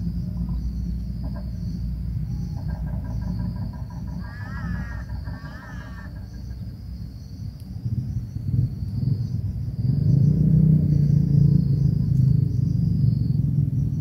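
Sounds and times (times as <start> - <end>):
high-pitched insect trilling: 0.0 - 8.5
wavering pitched calls: 2.4 - 6.6.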